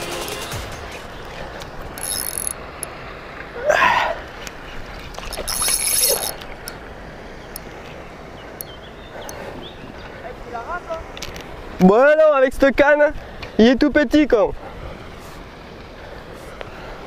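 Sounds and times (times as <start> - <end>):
water splashing: 1.1 - 8.2
fishing reel buzzing: 1.9 - 2.6, 5.1 - 6.6.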